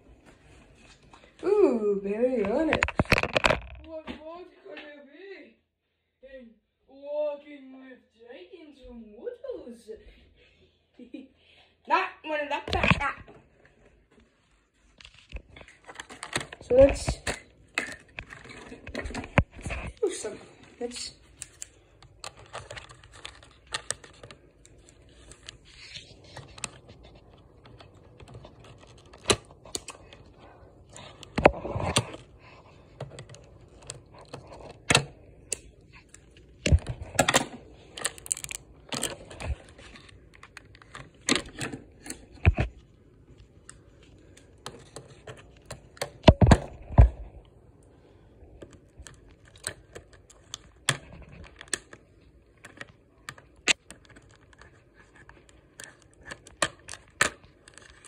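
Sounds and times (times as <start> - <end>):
plastic packaging rustling: 14.3 - 47.4, 48.1 - 58.0.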